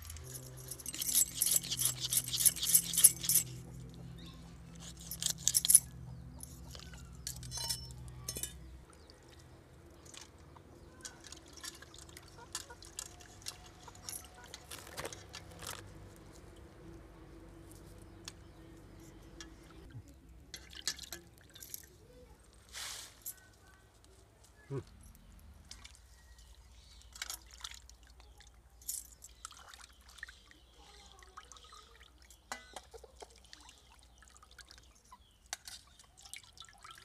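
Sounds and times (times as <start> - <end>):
knife scraping fish scales: 0.6 - 3.6, 4.7 - 5.8
clinks against steel pan: 6.4 - 8.7, 32.5 - 33.0
small water splashes: 8.8 - 15.6, 25.6 - 37.0.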